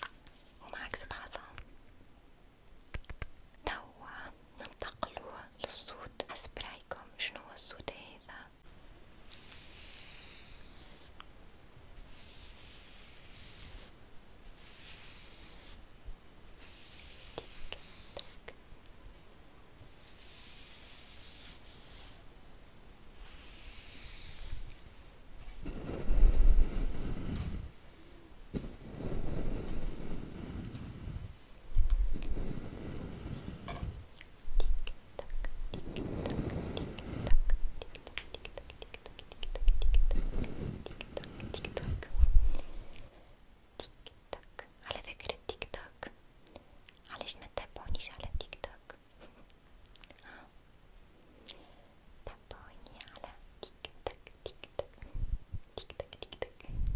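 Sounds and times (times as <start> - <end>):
person whispering: 0.0 - 1.6, 3.1 - 8.6, 34.6 - 43.1, 43.8 - 46.2, 47.0 - 49.0, 52.2 - 55.1, 55.7 - 56.9
soft hissing near microphone: 0.0 - 56.9
mouth clicks: 2.8 - 3.4, 34.2 - 40.2
breath puffs on microphone: 25.7 - 33.7.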